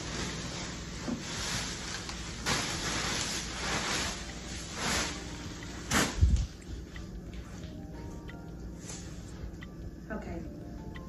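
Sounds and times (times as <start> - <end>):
plastic wrapping crinkling: 0.0 - 6.6.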